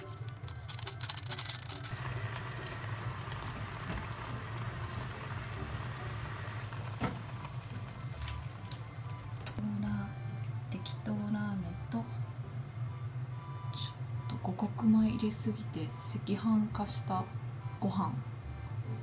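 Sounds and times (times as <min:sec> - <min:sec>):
ramen simmering in a pot: 0:01.9 - 0:09.6.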